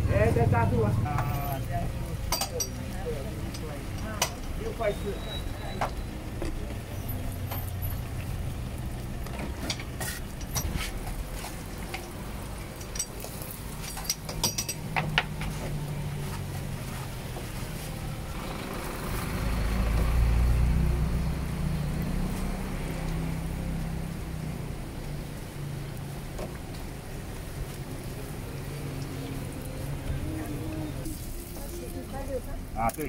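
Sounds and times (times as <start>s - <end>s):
vehicle passing: 0.0s - 2.2s, 15.1s - 32.8s
traffic engine rumble: 0.0s - 33.0s.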